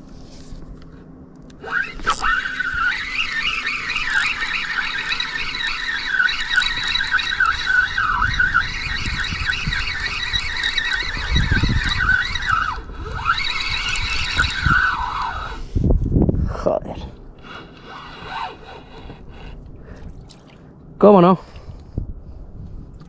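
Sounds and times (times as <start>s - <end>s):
fishing reel squeaky whine: 1.5s - 15.8s, 17.4s - 19.7s.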